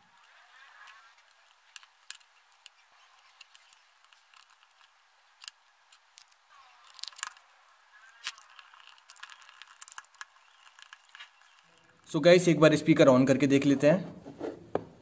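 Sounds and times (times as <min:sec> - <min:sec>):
plastic parts clicking and tapping: 0:00.2 - 0:07.4, 0:08.2 - 0:11.9.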